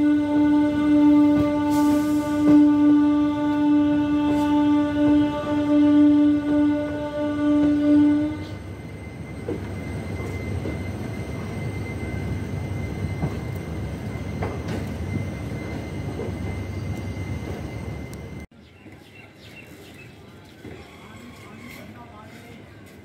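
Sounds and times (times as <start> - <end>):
train wheels rumbling on track: 0.0 - 23.0
rail clacks: 9.3 - 18.4.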